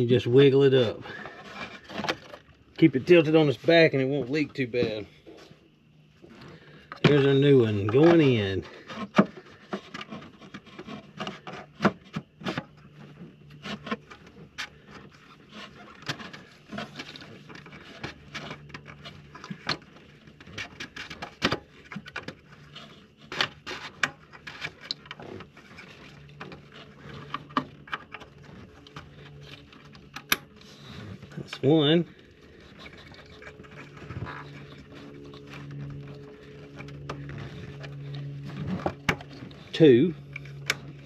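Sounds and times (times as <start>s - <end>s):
rubbing and scraping: 0.0s - 41.0s.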